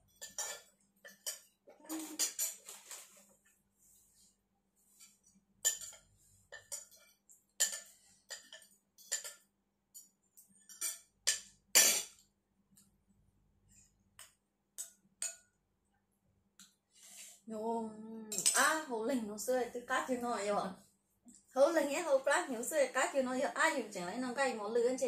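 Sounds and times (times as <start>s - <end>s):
cutlery clinking on ceramic dishes: 0.1s - 2.7s, 5.6s - 9.4s, 10.0s - 12.2s, 18.3s - 18.7s.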